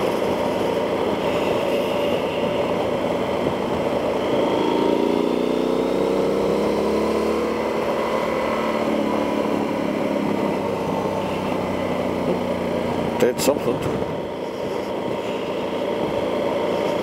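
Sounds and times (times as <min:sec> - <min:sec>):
motorcycle engine running: 0:00.0 - 0:17.0
wind noise: 0:12.3 - 0:17.0.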